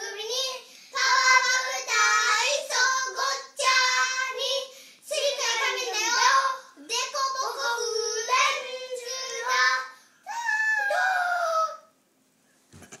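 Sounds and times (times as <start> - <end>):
children singing: 0.0 - 9.9.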